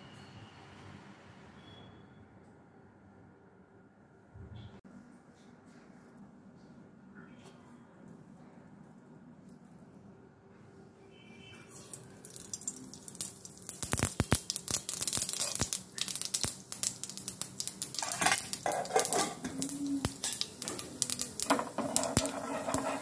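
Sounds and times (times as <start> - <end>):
seeds sizzling and popping in oil: 11.7 - 23.0.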